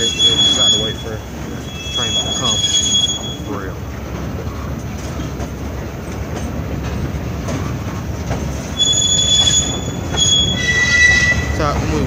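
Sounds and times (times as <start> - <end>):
high wheel squeal: 0.0 - 3.8, 8.6 - 12.0
train wheels rumbling on rail: 0.0 - 12.0.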